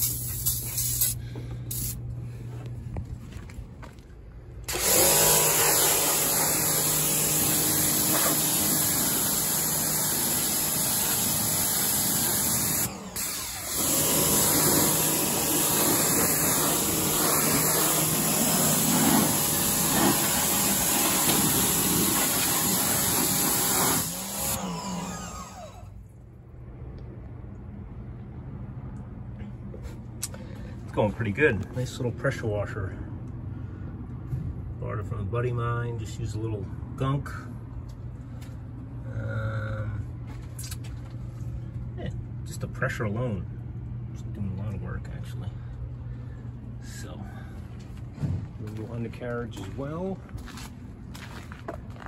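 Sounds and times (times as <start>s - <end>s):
aerosol can hissing: 0.0s - 2.0s, 15.4s - 24.6s
pressure washer motor humming: 4.7s - 26.0s.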